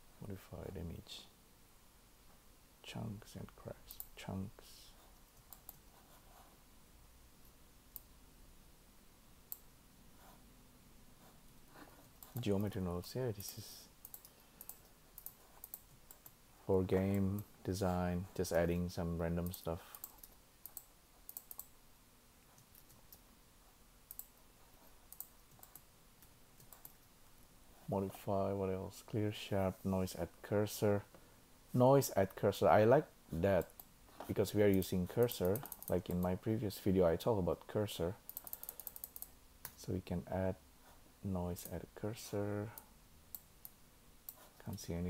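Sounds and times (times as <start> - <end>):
faint computer mouse clicks: 14.0 - 16.4, 25.1 - 27.0, 38.3 - 39.8.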